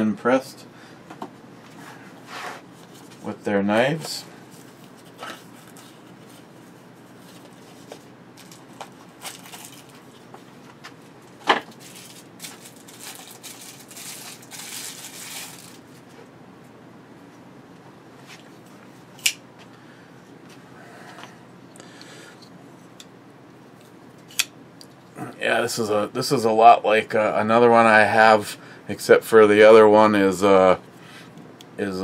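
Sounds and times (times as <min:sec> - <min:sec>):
plastic sleeve crinkling: 0:02.8 - 0:10.3, 0:11.2 - 0:16.1.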